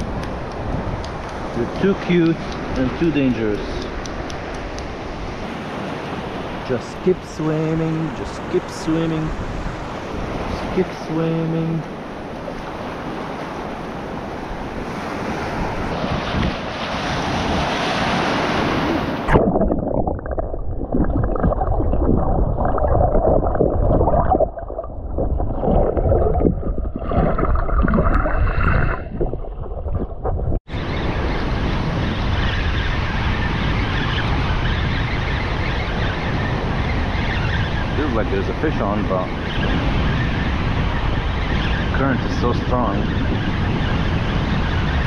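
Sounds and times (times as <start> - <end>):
surf washing over sand: 0.0 - 20.1
muffled underwater surf: 0.0 - 45.0.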